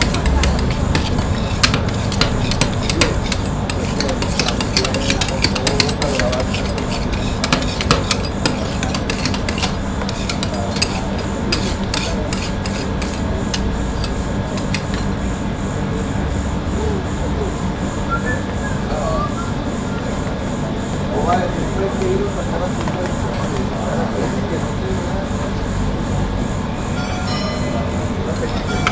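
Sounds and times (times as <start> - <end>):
metal spatulas scraping and chopping: 0.0 - 15.1, 28.4 - 28.9
steady low hum: 0.0 - 28.9.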